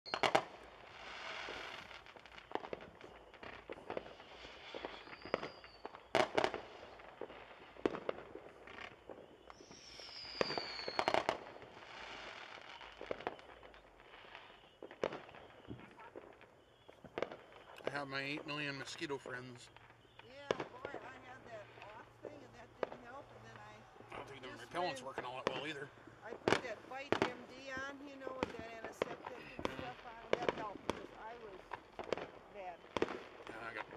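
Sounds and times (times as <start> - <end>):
falling firework whistle: 0.1 - 25.8
distant fireworks bangs and crackling: 0.1 - 33.9.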